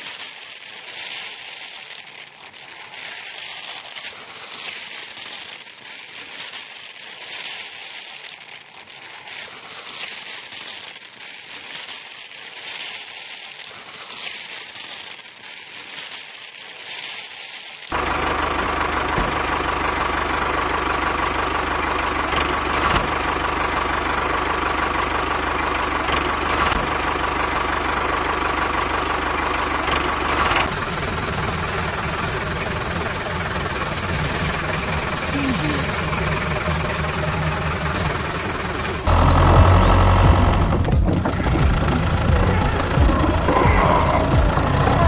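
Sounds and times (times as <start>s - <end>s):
dry rustling crackling hiss: 0.0s - 18.0s, 30.7s - 45.0s
truck engine idling: 18.0s - 45.0s.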